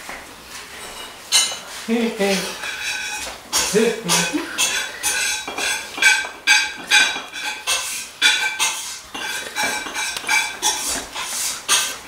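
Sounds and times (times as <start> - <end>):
hard objects clinking: 2.6 - 12.0.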